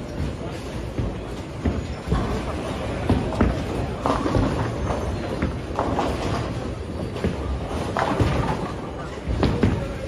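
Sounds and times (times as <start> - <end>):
bowling balls rolling on lanes: 0.0 - 10.0
balls crashing into pins: 1.6 - 10.0.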